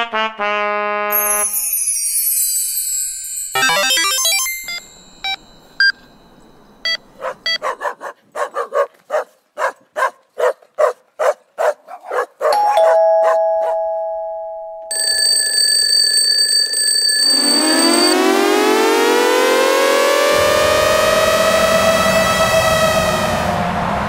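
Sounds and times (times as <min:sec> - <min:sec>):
two-tone chime: 0:01.2 - 0:07.1, 0:12.6 - 0:18.6
electronic interface beeps: 0:03.6 - 0:06.0
electronic alarm tone: 0:03.6 - 0:06.2, 0:14.8 - 0:23.8.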